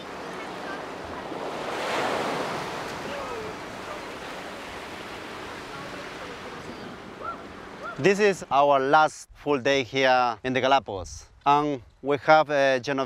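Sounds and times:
surf washing onto beach: 0.0s - 8.5s.

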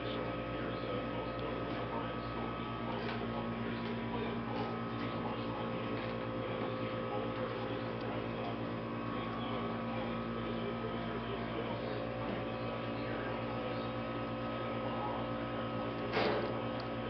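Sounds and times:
steady electrical hum: 0.0s - 17.0s.

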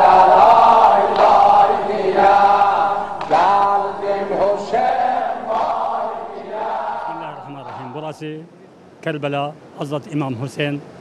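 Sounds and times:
voices chanting together: 0.0s - 8.2s.

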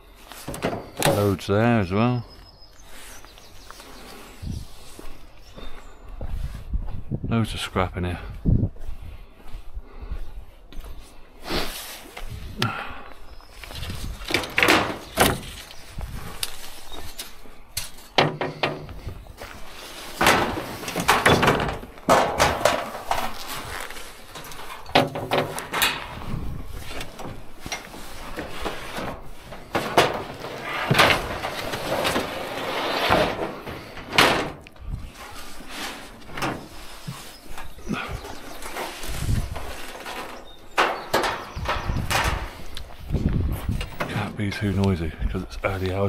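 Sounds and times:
metal and wood clattering: 0.2s - 1.5s, 13.6s - 44.8s
knocks and bangs: 18.2s - 19.2s, 20.2s - 23.4s, 24.9s - 26.2s, 28.4s - 32.4s, 39.5s - 42.6s.

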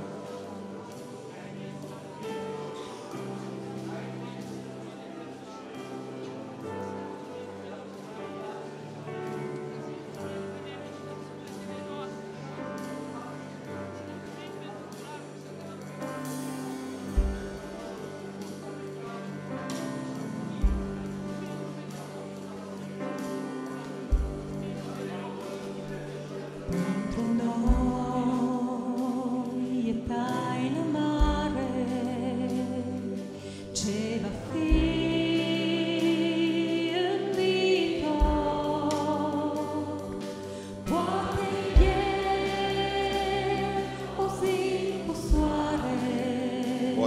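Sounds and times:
instrumental accompaniment: 0.0s - 47.0s
woman singing: 26.7s - 47.0s
low drum beat: 40.9s - 42.6s.

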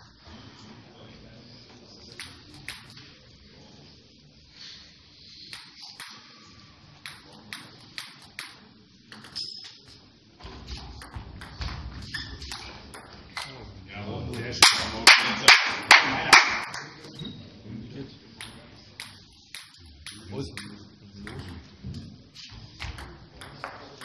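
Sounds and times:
table tennis ball clicking: 2.1s - 3.0s, 5.5s - 6.2s, 7.0s - 10.0s, 18.4s - 21.6s, 22.8s - 24.0s.

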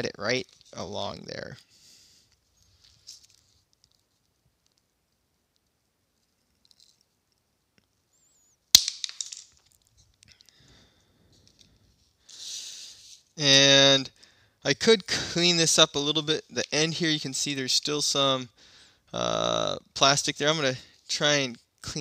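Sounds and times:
faint handling noises: 0.0s - 8.3s, 9.1s - 13.4s.

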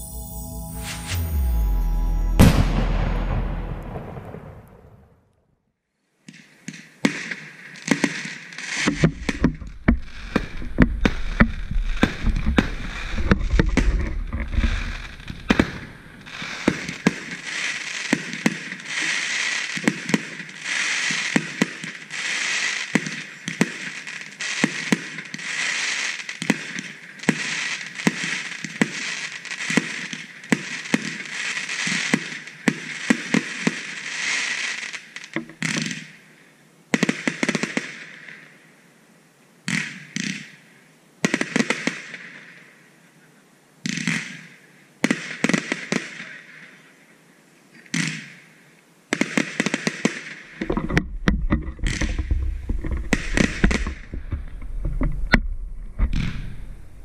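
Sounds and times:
fireworks hissing: 8.6s - 18.2s
firework shell bursts: 8.8s - 17.4s.

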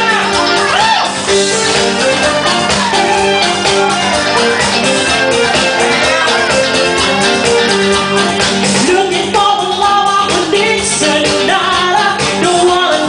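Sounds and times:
live rock band playing: 0.0s - 13.0s
women singing: 7.9s - 13.0s.

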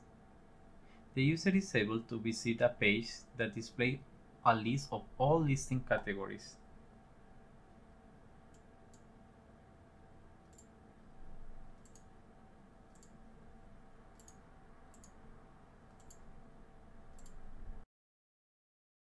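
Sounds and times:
low steady hum: 0.0s - 17.8s
computer mouse clicks: 8.5s - 9.1s, 10.4s - 10.8s, 11.7s - 12.1s, 12.9s - 13.2s, 14.1s - 15.2s, 15.9s - 16.3s, 17.1s - 17.5s.

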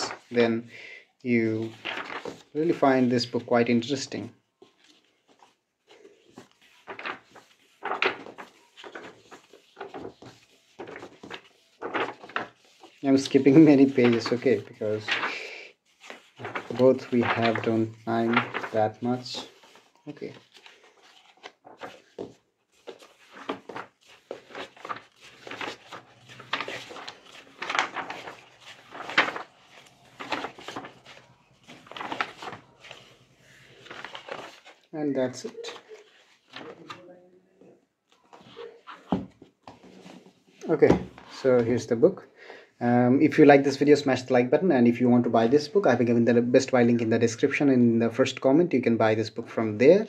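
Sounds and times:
book pages flipping: 1.6s - 3.0s, 4.5s - 37.1s, 38.1s - 41.4s.

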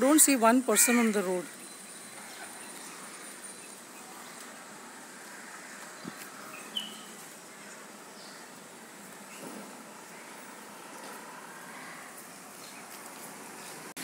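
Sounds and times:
quiet city street ambience: 0.0s - 14.0s
short high bird chirp: 6.6s - 7.1s.

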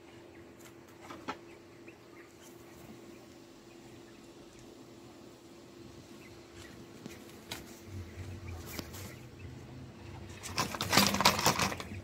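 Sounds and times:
faint steady hum: 0.0s - 12.0s
rapid rattling clatter: 10.3s - 12.0s.

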